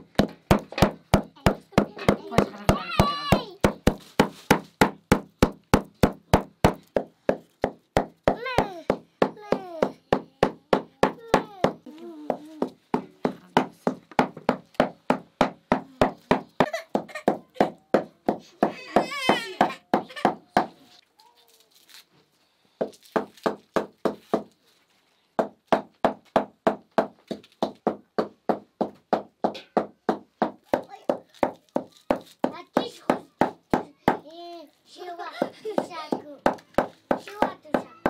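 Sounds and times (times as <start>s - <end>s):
small child's voice: 1.3s - 3.7s, 8.3s - 12.8s, 18.8s - 21.7s, 30.7s - 38.0s.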